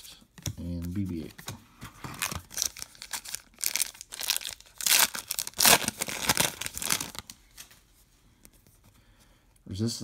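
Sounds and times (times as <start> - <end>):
foil wrapper tearing and crinkling: 2.2 - 7.3.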